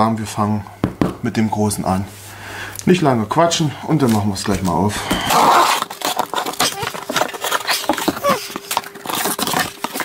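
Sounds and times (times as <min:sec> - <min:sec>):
plastic packaging crinkling: 0:04.0 - 0:10.0.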